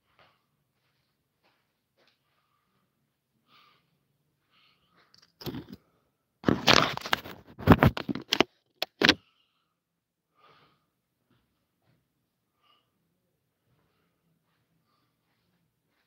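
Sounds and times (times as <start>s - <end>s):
phone handling scrapes and clatters: 5.2s - 5.8s, 6.4s - 9.2s.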